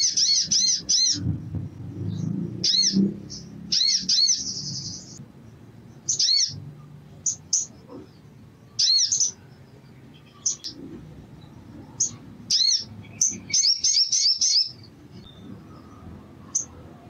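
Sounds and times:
bird chirping and warbling: 0.0 - 5.2, 5.8 - 17.0.

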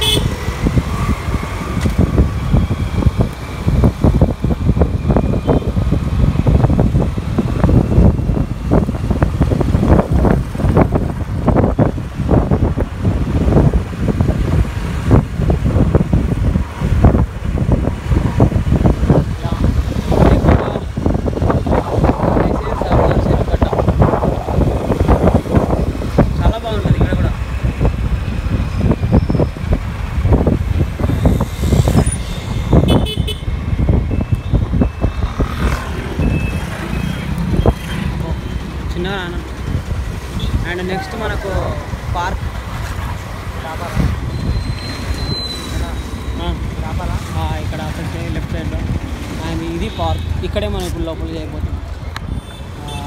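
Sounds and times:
vehicle horn toot: 0.0 - 0.3, 32.9 - 33.5
wind buffeting microphone: 0.0 - 45.5
road and traffic noise: 0.0 - 53.0.

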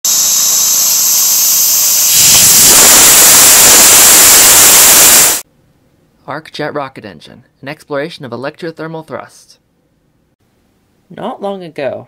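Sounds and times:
thruster hissing: 0.0 - 5.4
faint high whistling: 0.1 - 5.4.

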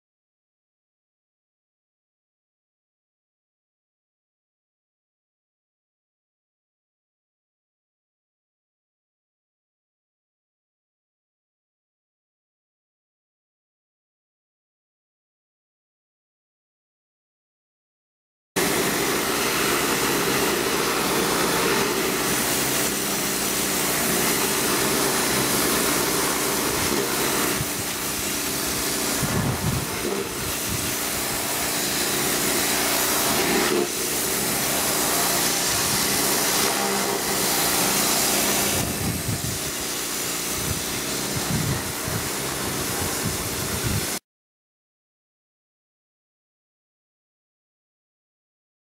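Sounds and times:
pressure washer hum: 18.6 - 44.2
water jet hissing on concrete: 18.6 - 44.2.

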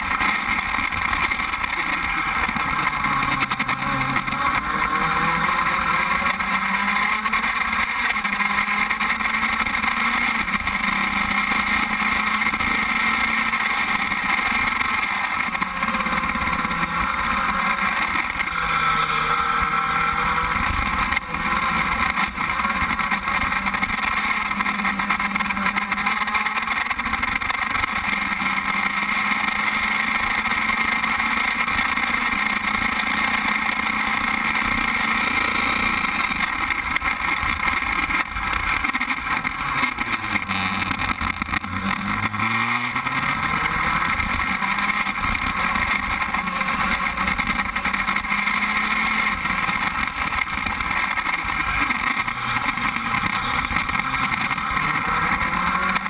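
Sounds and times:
race car engine at speed: 0.0 - 56.0.

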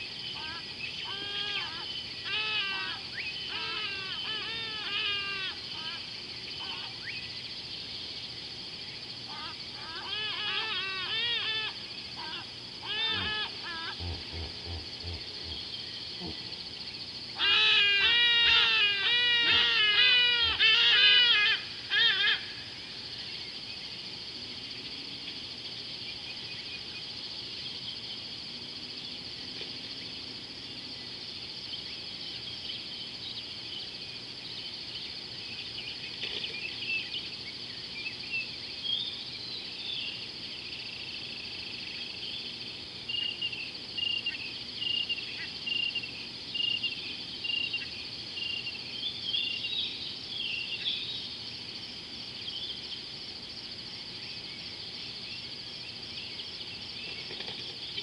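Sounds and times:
high-pitched insect chorus: 0.0 - 58.0
insect chirps: 0.0 - 58.0
animal calling loudly: 9.8 - 15.2, 17.4 - 22.4.

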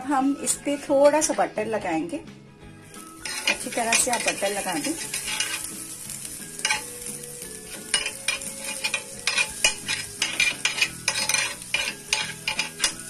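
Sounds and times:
butter sizzling on grill pan: 2.8 - 13.0
metal spoon scraping grill ridges: 2.9 - 13.0.

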